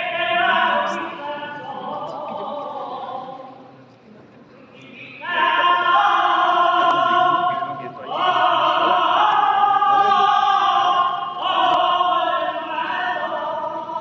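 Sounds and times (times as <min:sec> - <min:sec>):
choir singing held chords: 0:00.0 - 0:03.7, 0:04.8 - 0:14.0.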